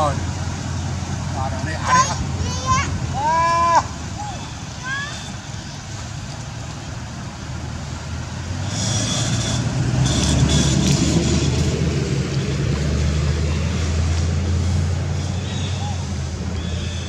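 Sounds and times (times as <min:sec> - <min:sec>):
vehicle engine running: 0:05.2 - 0:17.0.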